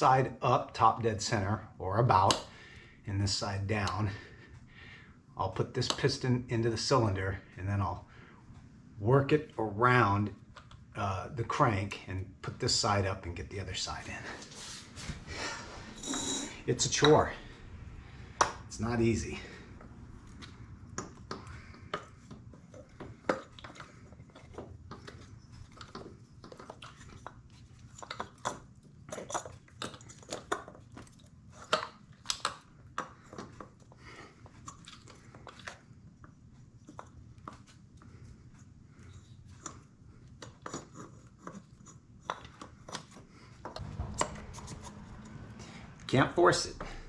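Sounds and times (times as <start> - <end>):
low steady hum: 43.2 - 47.0.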